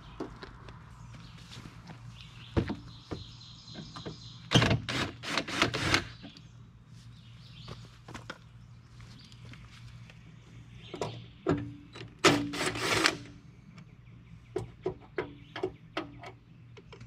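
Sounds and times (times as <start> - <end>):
cordless drill spurts: 12.3 - 13.2.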